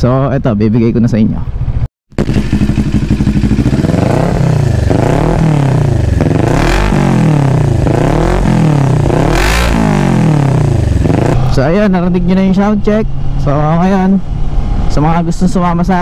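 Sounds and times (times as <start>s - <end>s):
motorcycle engine idling and revving: 1.5s - 11.8s.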